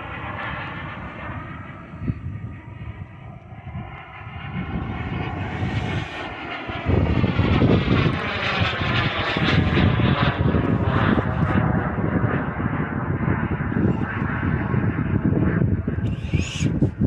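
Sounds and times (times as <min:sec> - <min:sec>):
model aircraft engine: 0:00.0 - 0:17.0
wind buffeting microphone: 0:00.0 - 0:17.0.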